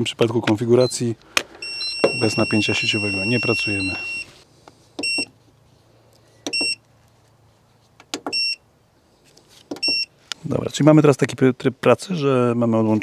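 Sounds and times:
short high buzzer beeps: 1.6 - 4.3.

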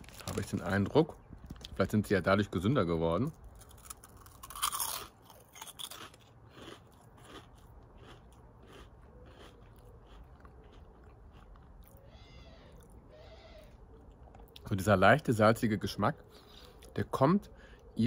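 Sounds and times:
crunchy snacks being chewed: 0.0 - 1.8, 3.4 - 12.0, 13.9 - 14.6.

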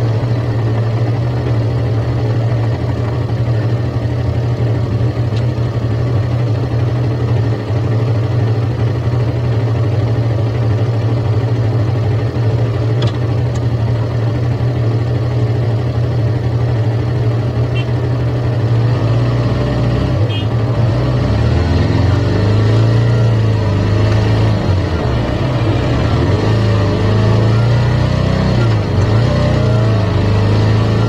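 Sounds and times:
motorcycle engine idling: 0.0 - 18.7.

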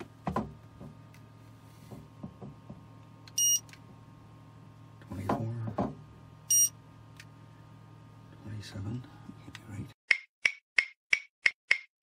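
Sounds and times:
faint steady hum: 0.0 - 10.0
thermometer beeping: 3.3 - 3.7, 6.4 - 6.8.

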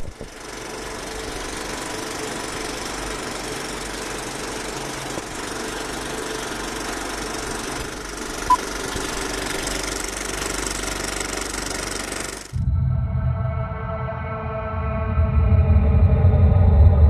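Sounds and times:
film projector rattle: 0.0 - 12.6.

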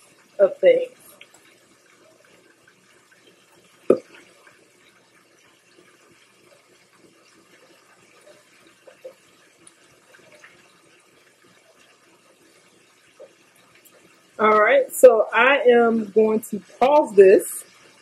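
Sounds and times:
patties sizzling in oil: 0.0 - 18.0.

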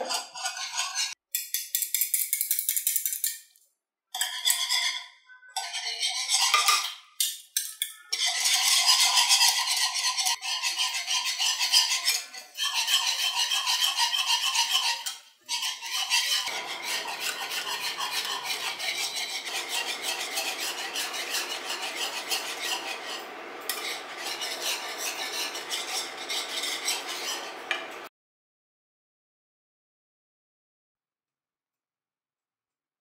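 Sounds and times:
whisk scraping frying pan: 0.0 - 1.2, 4.2 - 28.1.

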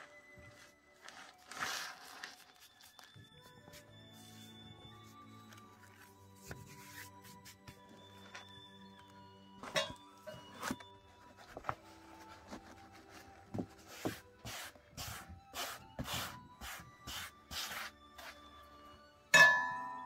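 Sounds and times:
hands sweeping flour on leather: 0.5 - 5.2, 6.4 - 7.9, 12.2 - 18.4
metal spoon striking brass bowl: 19.3 - 20.0.

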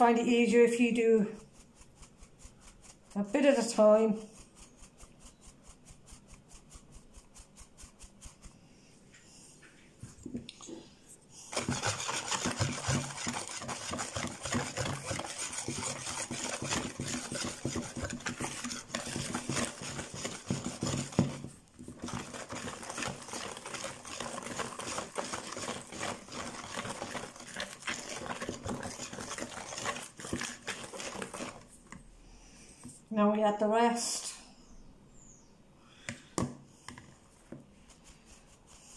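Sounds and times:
sieve tapping: 11.5 - 31.7.

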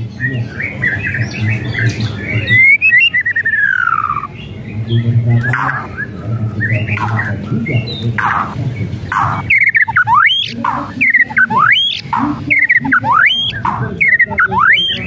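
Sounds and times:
bird rasping calls: 2.4 - 4.5, 5.4 - 15.0.

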